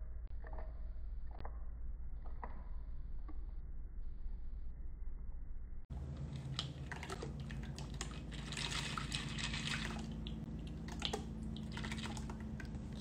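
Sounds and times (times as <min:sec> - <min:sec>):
liquid pouring into glass: 0:06.2 - 0:13.0.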